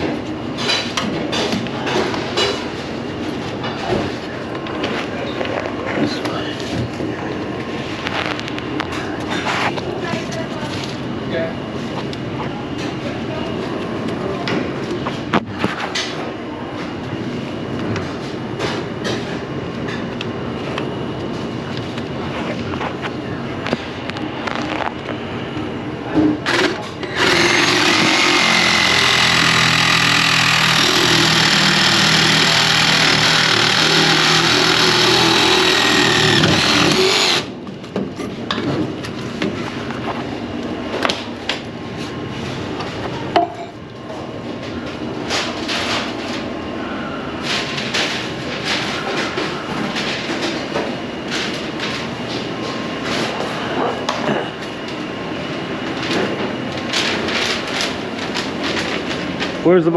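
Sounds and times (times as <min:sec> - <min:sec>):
power tool running: 0:26.5 - 0:37.5.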